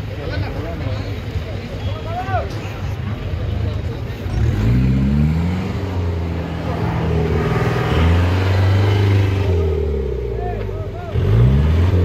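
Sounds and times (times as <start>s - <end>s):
engine revving under load: 4.2s - 12.0s.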